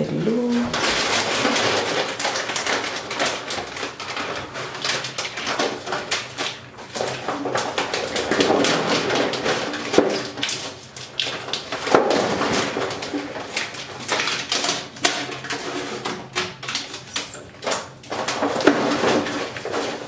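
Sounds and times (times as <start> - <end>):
contact paper crinkling: 0.2 - 20.0.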